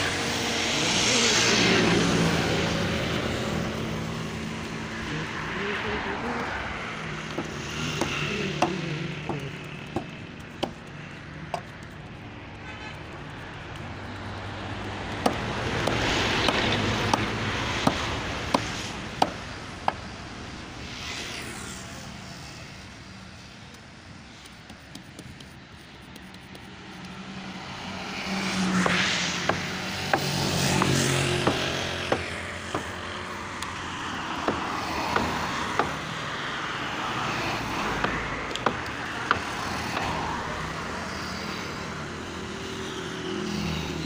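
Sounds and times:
blade chopping dry straw: 7.3s - 12.1s, 13.6s - 20.1s, 24.3s - 27.2s, 28.8s - 33.0s.

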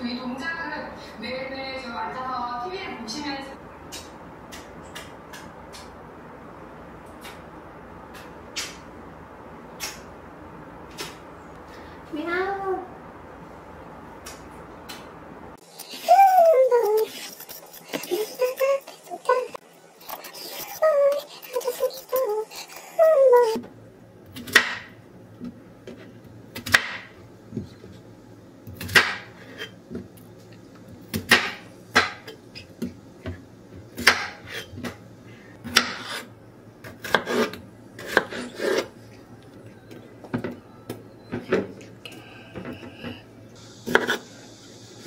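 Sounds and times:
knife cutting on cutting board: 37.0s - 39.0s.

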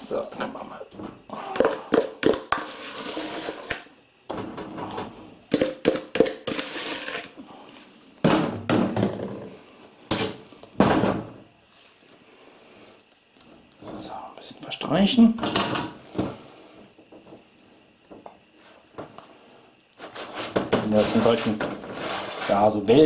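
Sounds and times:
batter scraped from bowl: 2.5s - 3.8s, 6.4s - 7.8s, 20.0s - 22.8s.

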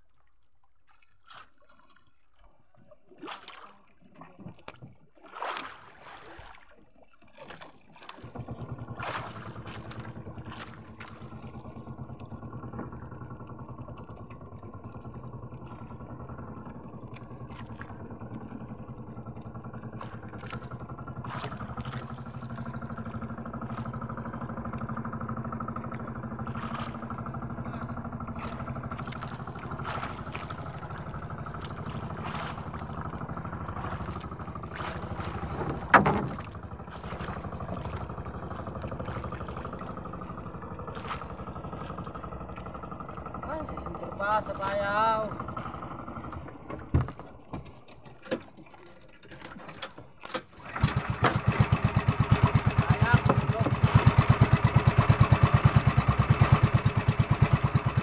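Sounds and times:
boat motor running: 1.4s - 58.0s
knocks and clatter: 35.1s - 36.7s, 45.4s - 48.7s.

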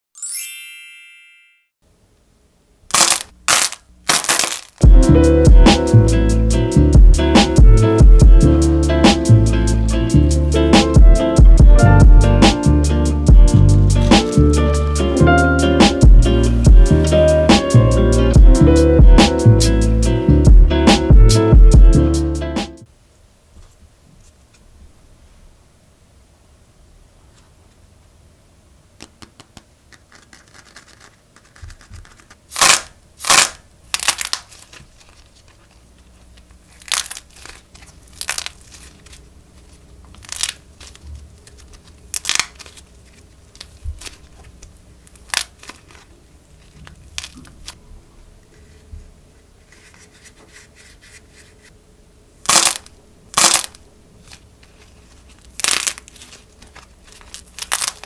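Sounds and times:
clay skin cracking: 2.9s - 4.8s, 29.0s - 35.6s, 36.3s - 47.8s, 52.5s - 58.0s
soft clay crinkling and tearing: 2.9s - 4.8s, 30.2s - 47.8s, 53.4s - 58.0s.

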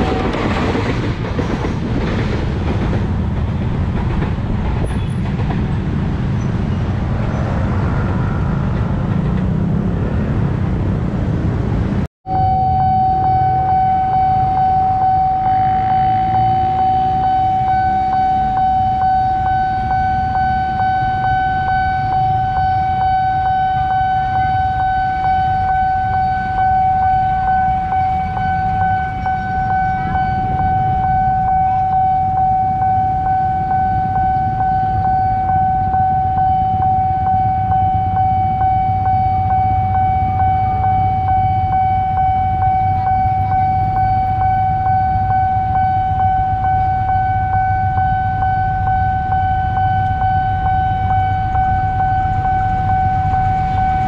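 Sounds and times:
level-crossing alarm tone: 12.3s - 54.0s
vehicles idling: 12.8s - 54.0s.

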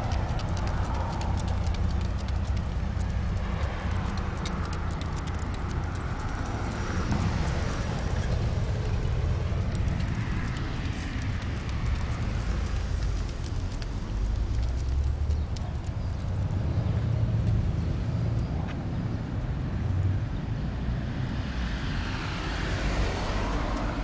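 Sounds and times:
dog claws ticking on concrete: 0.0s - 16.6s
steady low rumble: 0.0s - 20.2s.

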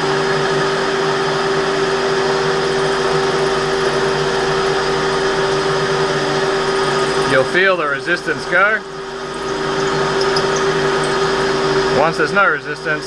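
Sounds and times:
metal lathe humming: 3.8s - 13.0s.

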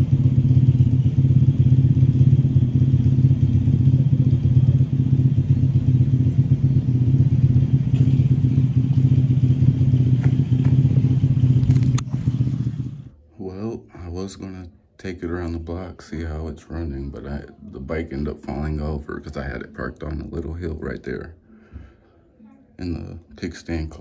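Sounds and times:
small motorbike engine idling: 0.0s - 13.2s.

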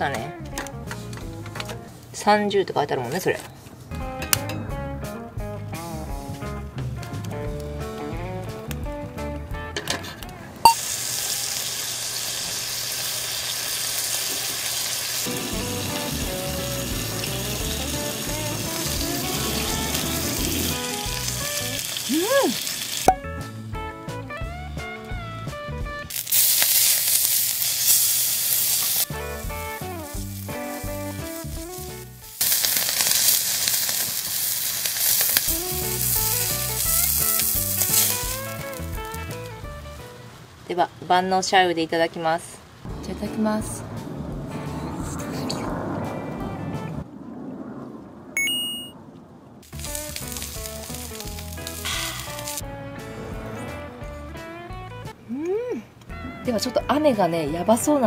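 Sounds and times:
guitar music: 0.0s - 1.9s, 3.9s - 10.8s, 15.3s - 21.9s, 23.1s - 26.1s, 29.1s - 32.3s, 35.5s - 40.3s, 49.8s - 55.2s
steak sizzling on griddle: 10.7s - 23.2s, 26.1s - 40.1s, 49.6s - 52.7s.

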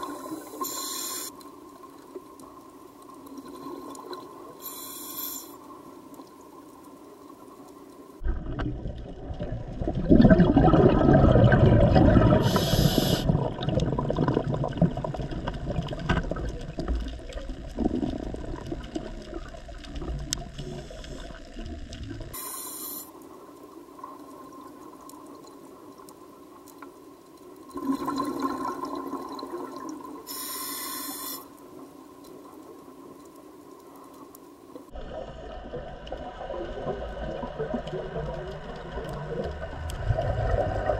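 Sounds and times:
regulator inhale hisses: 0.0s - 1.4s, 4.6s - 5.6s, 12.4s - 13.4s, 22.4s - 23.2s, 30.3s - 31.6s
exhaled bubbles underwater: 8.2s - 22.4s, 27.7s - 30.5s, 34.9s - 40.9s.

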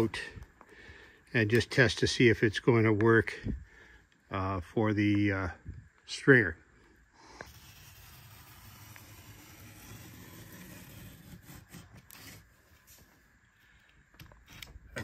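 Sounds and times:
utility knife cutting cardboard: 7.3s - 13.0s.

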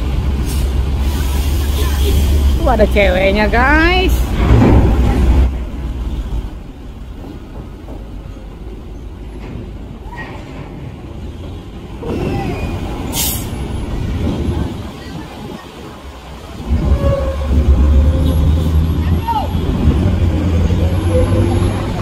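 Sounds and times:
bus diesel engine rumbling: 0.0s - 22.0s
air brakes hissing: 0.4s - 2.6s, 13.0s - 13.7s.

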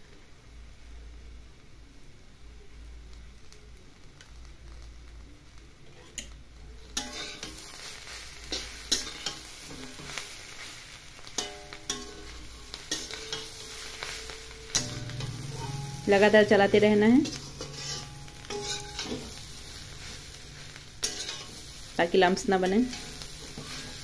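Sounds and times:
frying sizzle: 0.0s - 24.0s
metal spatula clinking and scraping pan: 7.0s - 10.4s, 11.2s - 24.0s.

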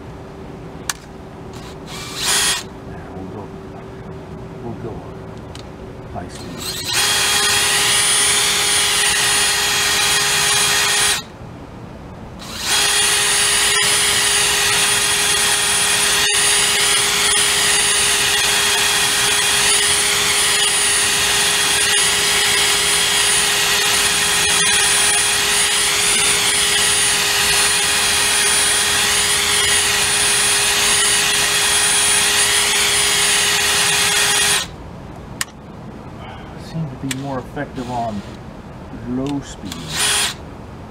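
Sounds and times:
drill motor whining: 1.5s - 2.7s, 6.4s - 11.3s, 12.4s - 34.7s, 39.7s - 40.4s.

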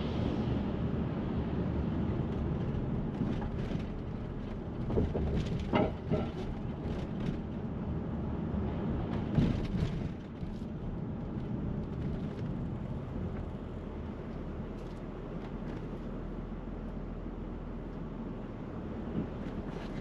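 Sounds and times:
city street traffic rumble: 0.0s - 20.0s.

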